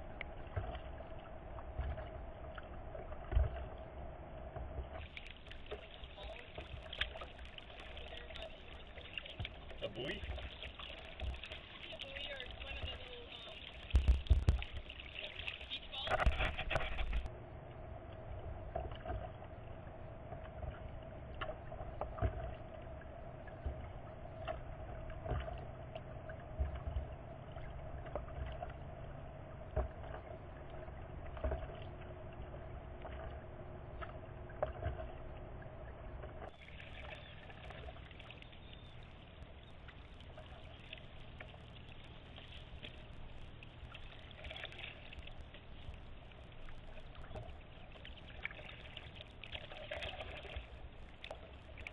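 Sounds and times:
faint hum: 0.0 - 51.9
water splashing against kayak hull: 0.0 - 51.9
water trickling: 4.5 - 51.9
knocks: 13.9 - 14.9.

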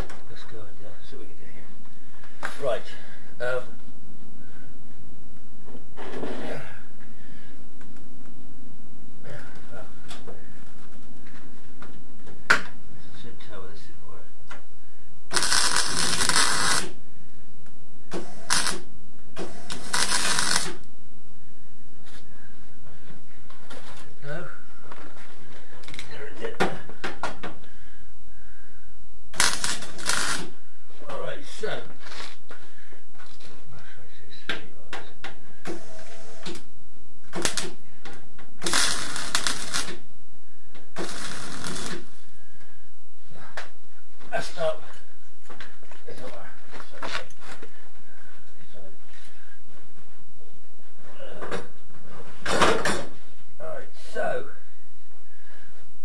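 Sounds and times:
electric welding arc crackling: 15.3 - 17.0, 18.1 - 20.9, 29.3 - 30.6, 37.3 - 37.8, 38.6 - 40.1, 41.0 - 42.2.

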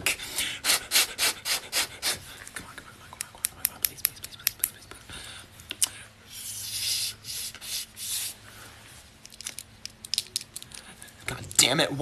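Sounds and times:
person blowing into hands: 0.1 - 2.2.

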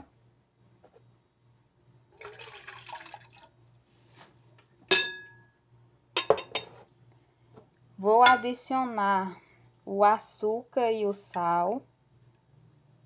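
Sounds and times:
water poured into hot oil: 2.2 - 4.7
glass cup clinking on pot: 4.9 - 5.5, 6.2 - 6.8, 8.3 - 8.5.

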